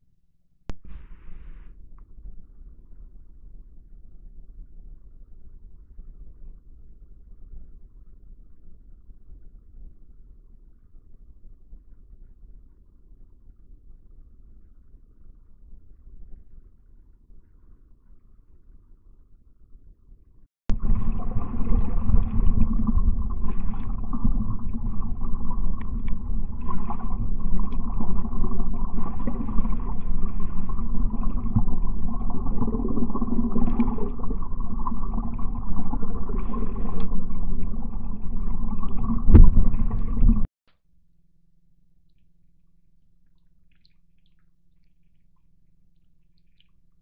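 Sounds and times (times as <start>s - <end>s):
rushing creek floodwater: 20.7s - 40.5s.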